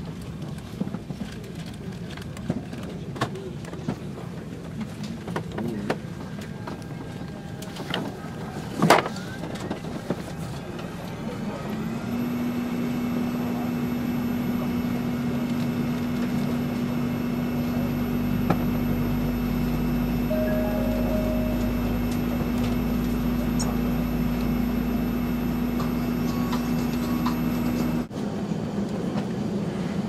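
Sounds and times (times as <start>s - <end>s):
humming drone: 17.3s - 28.1s
low rumble: 20.1s - 26.2s.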